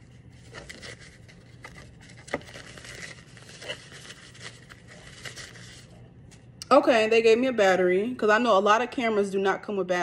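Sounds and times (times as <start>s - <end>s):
packaging rustling and crinkling: 0.0s - 6.0s.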